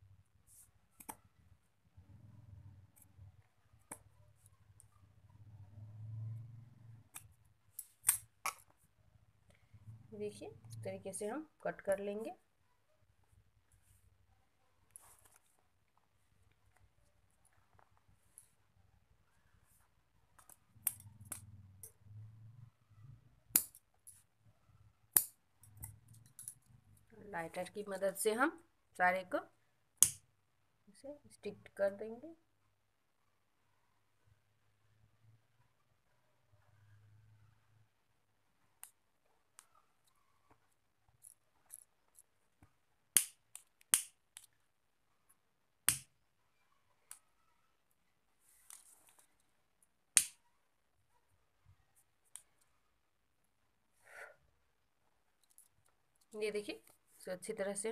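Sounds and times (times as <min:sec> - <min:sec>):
cord rustling: 0:14.8 - 0:18.7, 0:48.4 - 0:49.6
scissors snipping cord: 0:23.5 - 0:23.8, 0:25.1 - 0:26.6, 0:30.0 - 0:30.2, 0:43.1 - 0:44.6, 0:45.8 - 0:46.1, 0:50.2 - 0:50.4.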